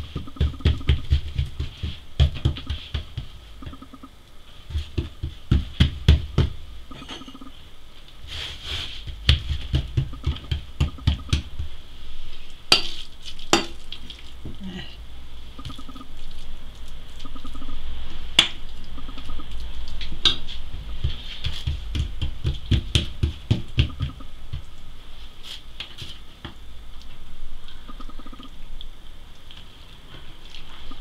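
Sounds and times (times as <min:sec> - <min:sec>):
hands patting dough: 0:00.0 - 0:07.5, 0:08.2 - 0:14.6, 0:18.4 - 0:26.6.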